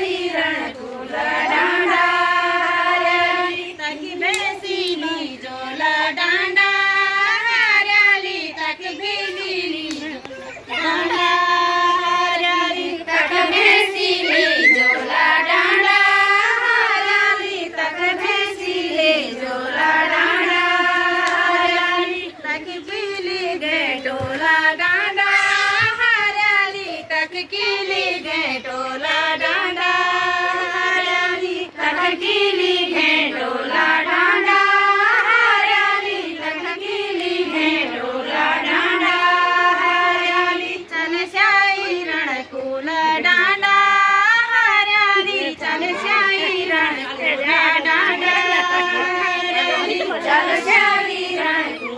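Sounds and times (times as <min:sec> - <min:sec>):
women singing unaccompanied: 0:00.0 - 0:51.9.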